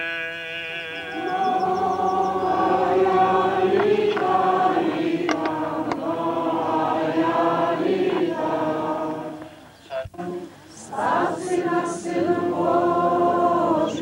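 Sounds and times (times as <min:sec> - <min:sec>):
held sung note: 0:00.0 - 0:04.9
group of voices chanting: 0:01.1 - 0:09.5, 0:10.8 - 0:14.0.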